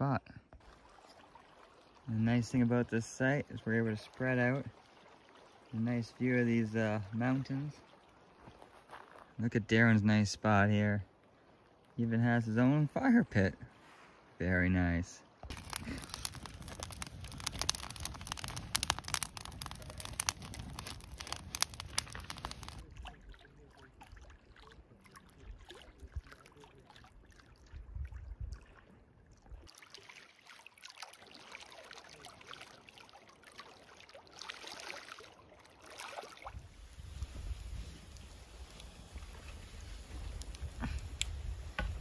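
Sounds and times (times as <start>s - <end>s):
lake water lapping at shore: 0.5s - 9.4s, 15.2s - 42.0s
kindling crackling and snapping: 15.4s - 22.9s, 36.8s - 42.0s.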